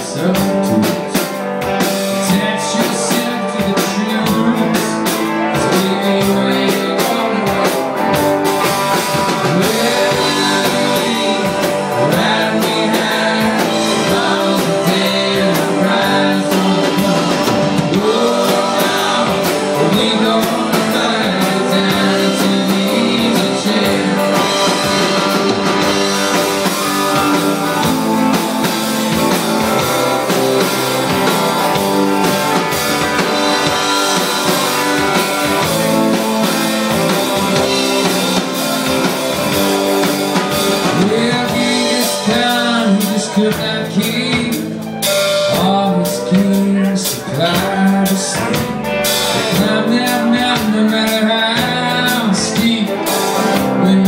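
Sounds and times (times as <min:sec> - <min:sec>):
live rock band playing: 0:00.0 - 0:54.0
sliding bending guitar notes: 0:01.4 - 0:42.9.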